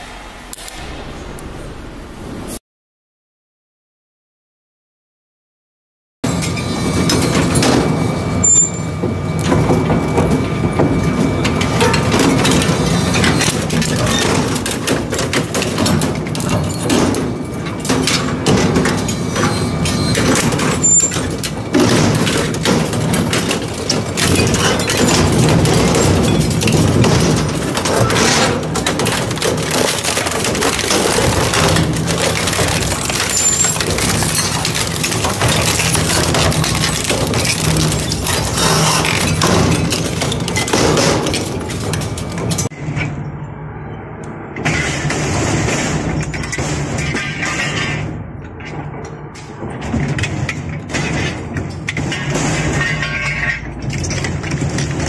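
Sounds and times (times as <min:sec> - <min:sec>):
crushing machine humming: 0:06.3 - 0:43.3, 0:44.5 - 0:55.0
material cracking and crunching: 0:21.4 - 0:42.6.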